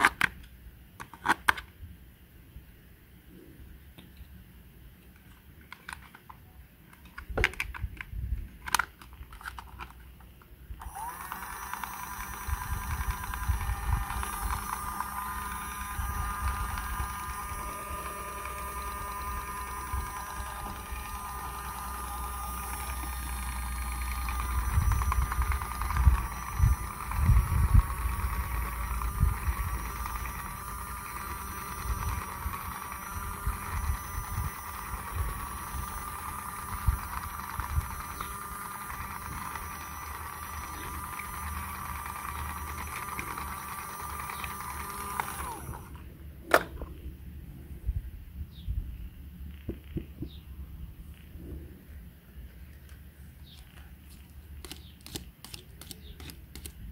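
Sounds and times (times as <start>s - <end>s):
toy sewing machine motor whine: 10.8s - 46.1s, 53.4s - 56.9s.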